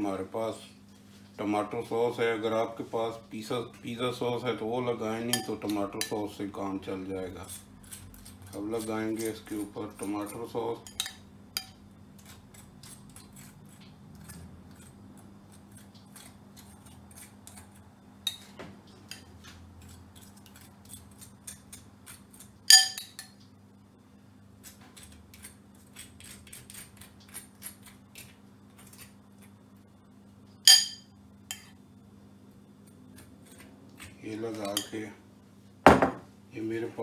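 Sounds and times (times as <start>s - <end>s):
loud spoon clinks: 30.7s - 31.1s
spoon tapping ceramic bowl: 30.7s - 31.7s.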